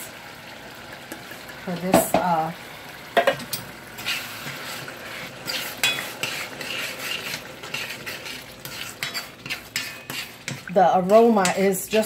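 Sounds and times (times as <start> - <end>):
sauce sizzling: 0.0 - 12.0
utensil scraping a metal pot: 4.0 - 12.0.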